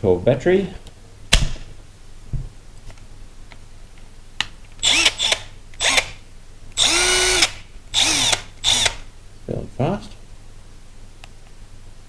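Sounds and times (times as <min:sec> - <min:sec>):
impact wrench motor whining: 0:04.8 - 0:06.2, 0:06.8 - 0:09.0.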